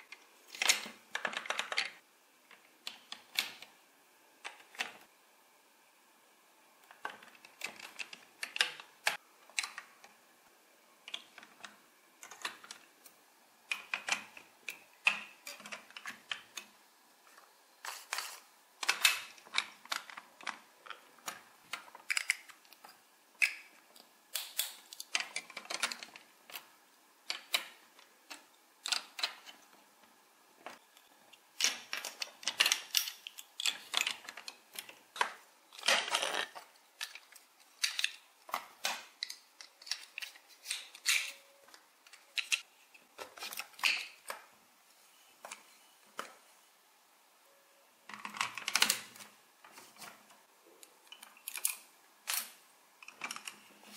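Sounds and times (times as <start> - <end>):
plastic blocks clicking and clattering: 0.0 - 3.8, 6.8 - 10.2, 11.0 - 13.0, 13.6 - 29.8, 30.6 - 44.5, 48.1 - 50.2, 51.0 - 53.9.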